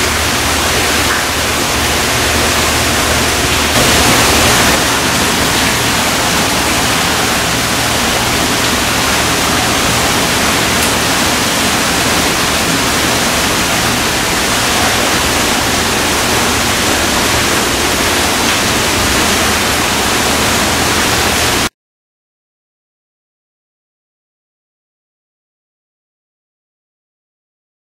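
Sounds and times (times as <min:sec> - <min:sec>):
running water: 0:00.0 - 0:21.7.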